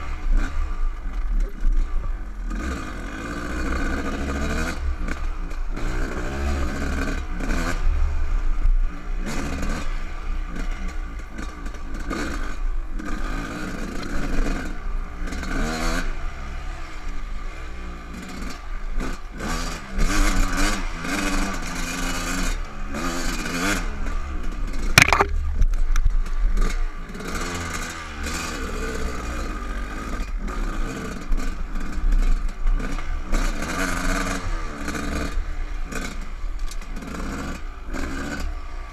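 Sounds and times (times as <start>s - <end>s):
dirt bike engine revving: 2.5s - 7.9s, 26.3s - 36.2s
sharp knock: 25.0s - 25.7s.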